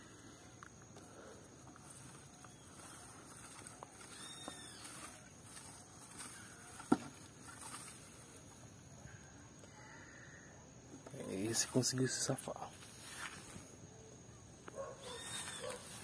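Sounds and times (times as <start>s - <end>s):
rustling of weeds and grass: 0.0s - 9.0s, 11.1s - 16.0s.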